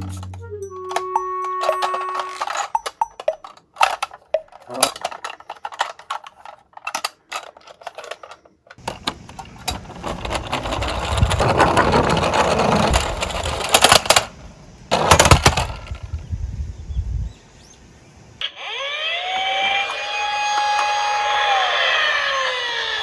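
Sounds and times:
toy truck clicks and knocks: 0.0s - 16.0s
plastic wheels rumbling on wood: 1.6s - 16.1s.

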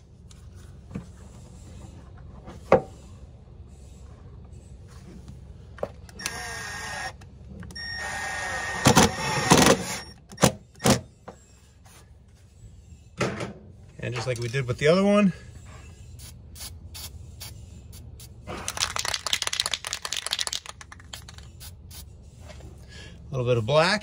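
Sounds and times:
cordless drill motor whine: 6.1s - 10.2s.

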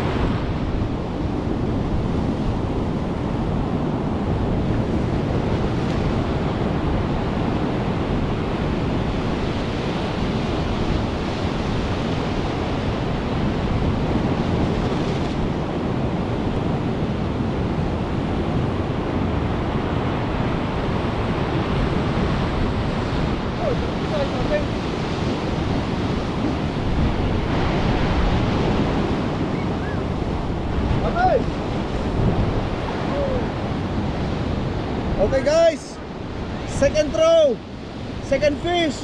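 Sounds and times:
surf breaking on rocky shore: 0.0s - 39.0s
wind buffeting microphone: 0.0s - 39.0s.

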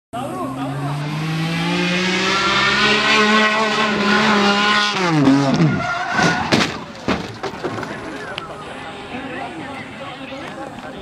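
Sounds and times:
race car engine at high revs: 0.2s - 6.5s
car skidding: 0.3s - 10.0s
car crashing into wall: 5.2s - 8.2s.

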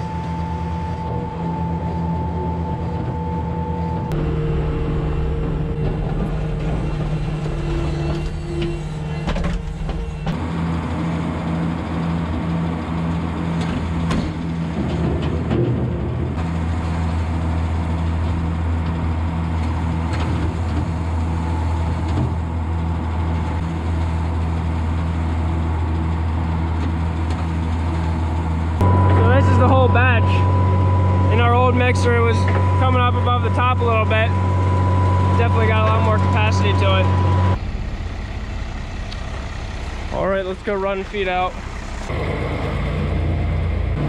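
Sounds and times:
feed mixer droning and pulsing: 0.0s - 44.0s
loader engine running: 0.0s - 44.0s.

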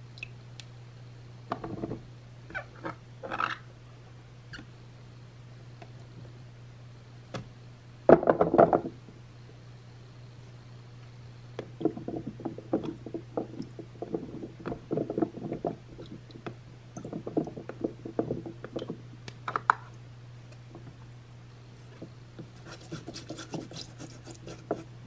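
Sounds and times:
steady low hum: 0.0s - 25.0s
brush scrubbing a carrot: 22.5s - 24.9s.

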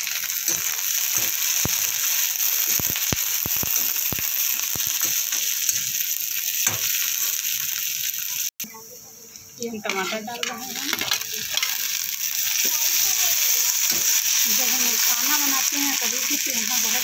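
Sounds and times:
vegetables sizzling in oil: 0.0s - 17.0s
metal spatula scraping pan: 9.8s - 11.8s.

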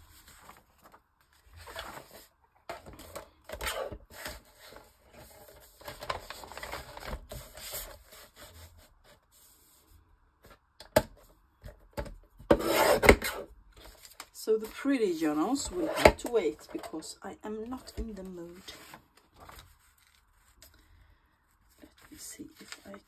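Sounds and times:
paper rustling and sliding: 0.0s - 10.0s, 17.8s - 20.8s, 21.7s - 23.0s.

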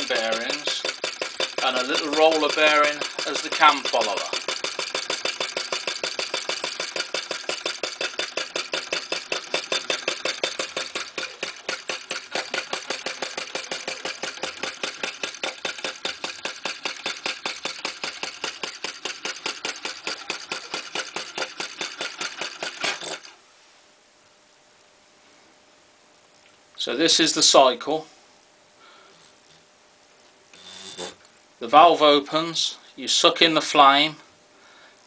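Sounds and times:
model engine clicking clatter: 0.0s - 23.3s.

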